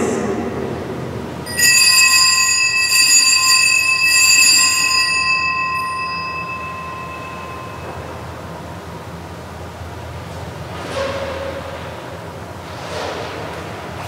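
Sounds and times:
altar bell ringing: 1.5 - 8.9.

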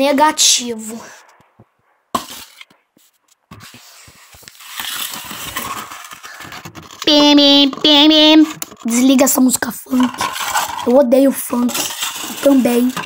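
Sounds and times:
plastic cups crackling: 3.4 - 13.0.

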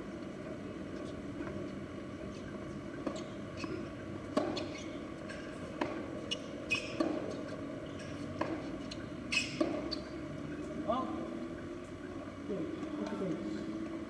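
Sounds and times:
steady background hiss: 0.0 - 14.0
tennis ball impacts: 3.0 - 6.1, 6.7 - 10.0.

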